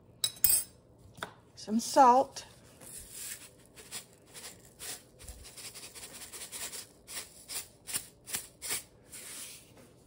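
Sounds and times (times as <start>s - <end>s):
salt shaker shaking: 3.1s - 9.6s.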